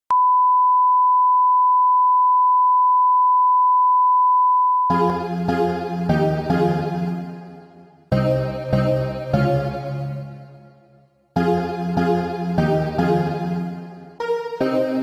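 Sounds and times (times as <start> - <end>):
steady test tone beep: 0.1 - 4.9
keyboard music with chords: 4.9 - 15.0.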